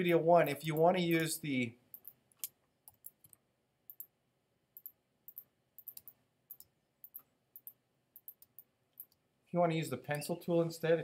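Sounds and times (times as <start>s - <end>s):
computer mouse clicking: 1.9s - 4.1s, 4.8s - 9.2s.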